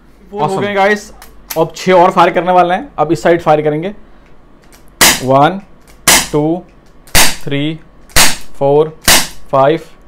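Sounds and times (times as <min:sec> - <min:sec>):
air pistol shots: 0:05.0 - 0:05.3, 0:06.0 - 0:06.4, 0:07.1 - 0:07.5, 0:08.1 - 0:09.4.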